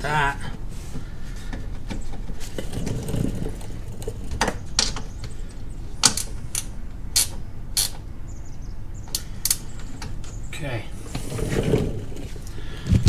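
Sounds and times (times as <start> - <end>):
ratchet wrench clicking: 6.0 - 8.0.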